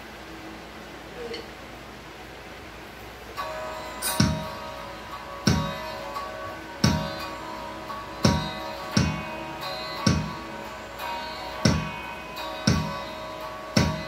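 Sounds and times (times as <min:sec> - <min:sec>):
held synth chord: 0:03.3 - 0:14.0
electronic kick drum hits: 0:04.0 - 0:04.6, 0:05.4 - 0:05.9, 0:06.8 - 0:07.2, 0:08.2 - 0:10.6, 0:11.6 - 0:13.1, 0:13.7 - 0:14.0.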